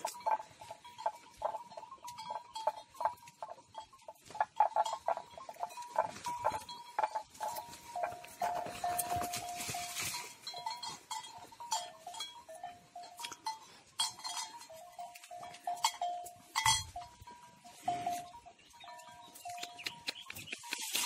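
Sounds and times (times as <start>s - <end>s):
animal neck bell clanking: 0.0s - 21.0s
dry brush crackling: 7.4s - 11.0s.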